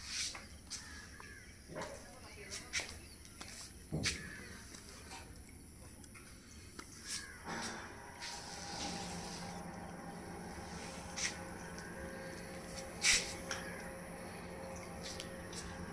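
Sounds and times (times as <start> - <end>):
low hum: 5.3 - 15.9.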